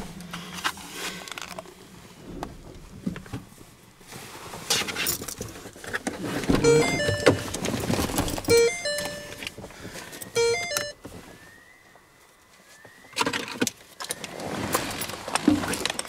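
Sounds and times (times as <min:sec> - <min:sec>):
electronic jingle of beeps: 0:06.6 - 0:07.6, 0:08.5 - 0:09.4, 0:10.4 - 0:11.0
faint rising whistles: 0:11.2 - 0:14.4.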